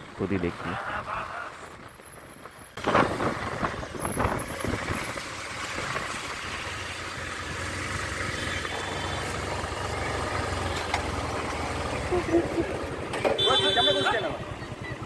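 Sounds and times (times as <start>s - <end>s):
motorcycle engine running: 3.7s - 15.0s.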